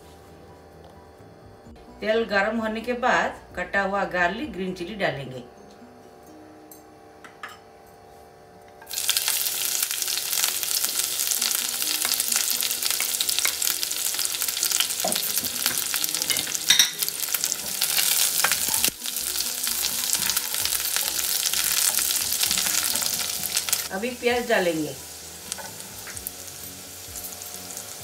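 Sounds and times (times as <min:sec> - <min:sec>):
loud sizzle in hot oil: 0:08.9 - 0:28.0.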